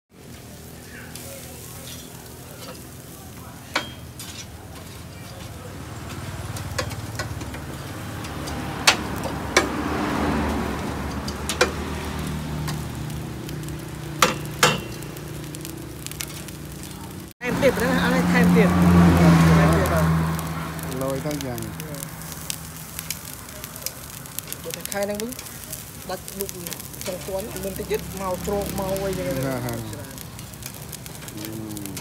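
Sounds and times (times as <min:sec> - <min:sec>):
meat sizzling on grill: 0:00.1 - 0:32.0
tongs clinking on grill grate: 0:03.6 - 0:05.3, 0:06.2 - 0:09.7, 0:12.7 - 0:17.2.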